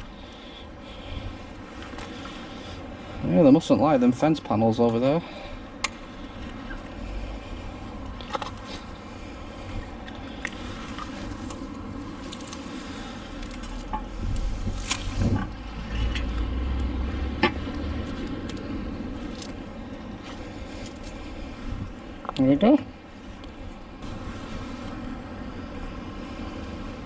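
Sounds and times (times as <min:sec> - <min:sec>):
low rumble: 0:05.6 - 0:22.2.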